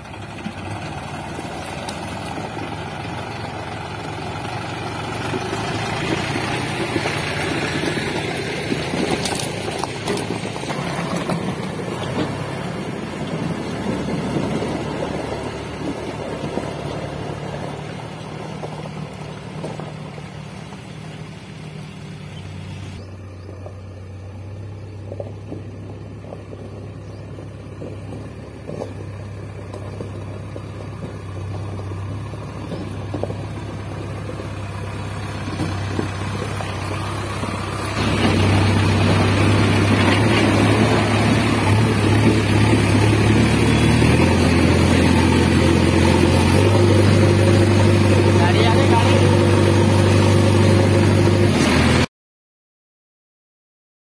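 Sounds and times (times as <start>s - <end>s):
backhoe loader engine running: 0.0s - 52.1s
tractor engine: 0.0s - 52.1s.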